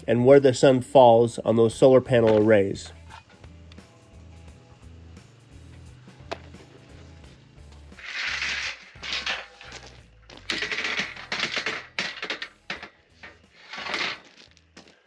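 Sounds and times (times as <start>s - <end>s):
metal channel scraping and rattling: 7.9s - 14.4s.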